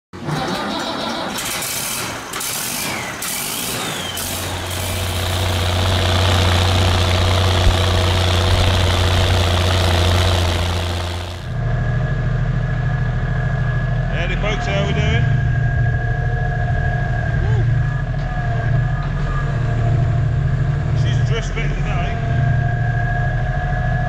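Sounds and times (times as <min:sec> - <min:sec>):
small tractor diesel engine: 0:00.3 - 0:11.8
tractor diesel engine running: 0:01.4 - 0:11.8.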